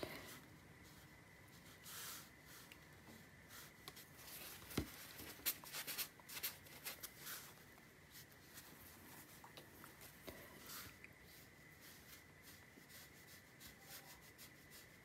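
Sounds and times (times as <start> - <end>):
paintbrush scratching on paper: 0.8 - 2.7, 10.6 - 15.0.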